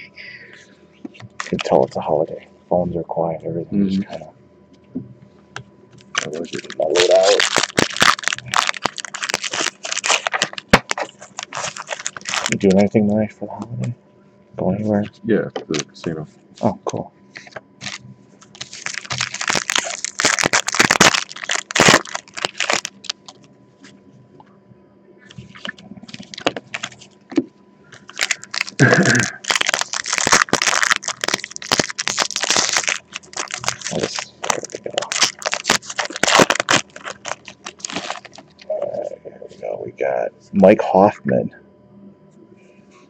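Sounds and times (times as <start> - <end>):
card wrappers tearing and crinkling: 1.2 - 2.0, 6.0 - 12.9, 17.4 - 23.5, 25.4 - 27.4, 28.0 - 39.0.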